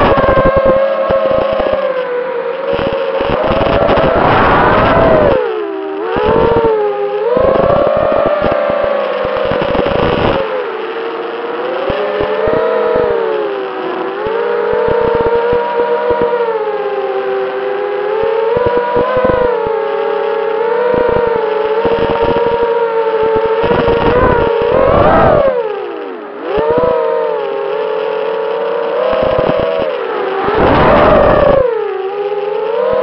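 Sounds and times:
drone motors whining: 0:00.0 - 0:33.0
short crackles: 0:02.5 - 0:16.4, 0:20.8 - 0:33.0.

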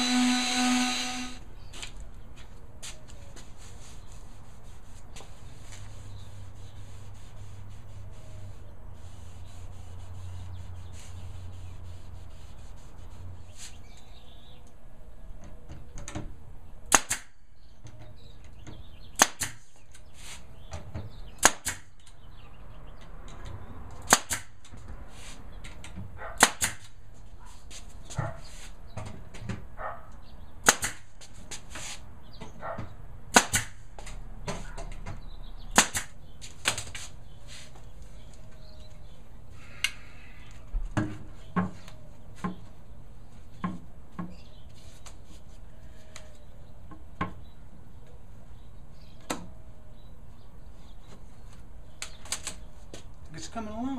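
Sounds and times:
nail gun firing: 0:00.0 - 0:01.4, 0:16.9 - 0:17.4, 0:19.2 - 0:19.6, 0:21.4 - 0:21.9, 0:24.1 - 0:24.6, 0:26.4 - 0:26.9, 0:30.6 - 0:31.1, 0:33.3 - 0:33.8, 0:35.7 - 0:36.2.

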